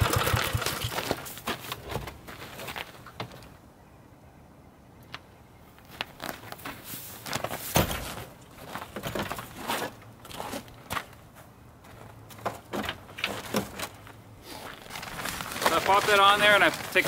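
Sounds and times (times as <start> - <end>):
straps and fabric rustling: 14.5 - 17.0.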